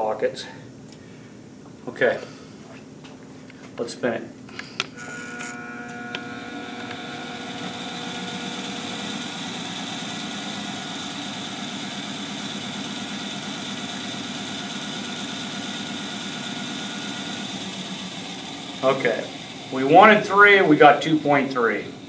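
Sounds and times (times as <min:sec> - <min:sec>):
balancing machine hum and whine: 0:04.4 - 0:22.0.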